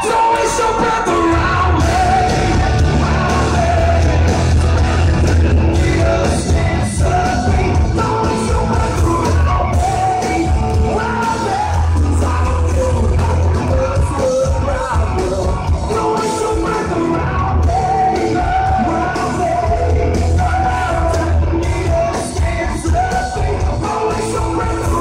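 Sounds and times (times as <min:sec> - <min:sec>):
man singing and yelling: 0:00.0 - 0:25.0
rock band playing live: 0:00.0 - 0:25.0.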